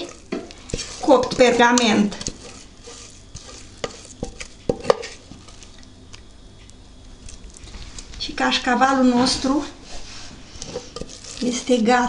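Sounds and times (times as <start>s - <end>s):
utensil stirring and scraping: 0.0s - 6.3s, 9.1s - 12.0s.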